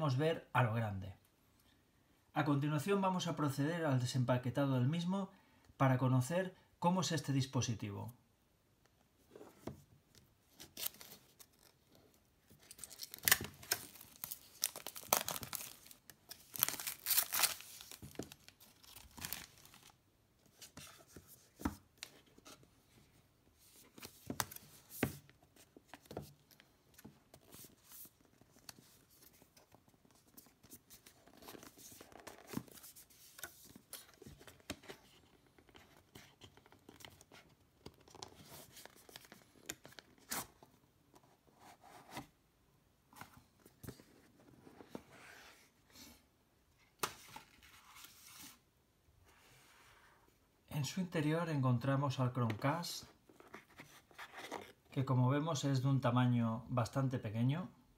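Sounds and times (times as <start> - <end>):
packaging tearing and crinkling: 12.6 - 19.9.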